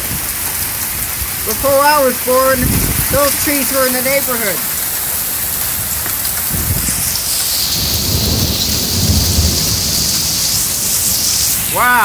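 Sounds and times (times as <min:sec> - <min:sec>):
heavy rain pouring: 0:00.0 - 0:12.0
deep thunder rumble: 0:02.5 - 0:03.7, 0:05.7 - 0:11.7.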